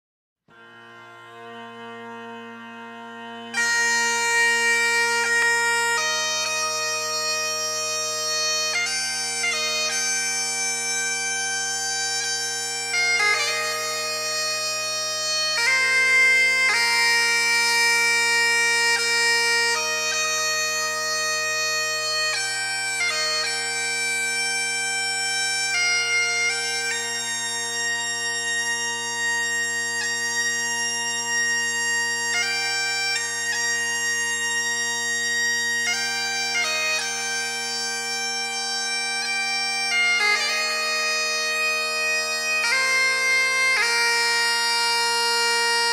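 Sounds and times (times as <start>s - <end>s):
bagpipes playing slow melody: 0.5s - 45.9s.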